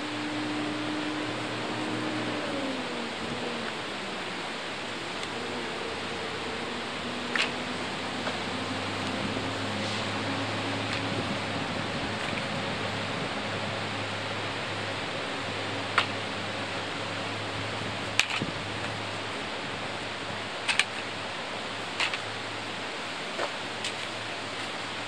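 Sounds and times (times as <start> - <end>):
rushing background noise: 0.0 - 25.0
chair frame poles clicking: 7.1 - 9.4, 18.1 - 19.0, 20.6 - 21.1, 21.9 - 22.4.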